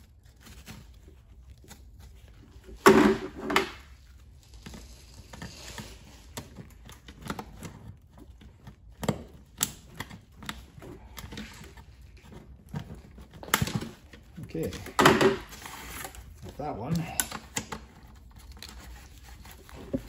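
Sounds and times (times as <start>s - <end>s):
rustle and scrape of carpet: 4.0s - 6.8s.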